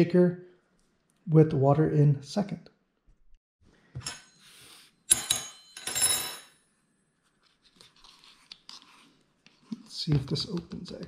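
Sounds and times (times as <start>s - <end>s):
metal utensil clinking tableware: 4.0s - 6.6s.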